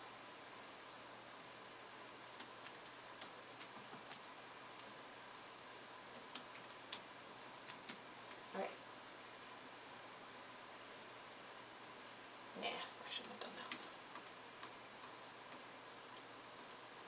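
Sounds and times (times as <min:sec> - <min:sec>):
stylus tapping on screen: 0:02.4 - 0:04.2.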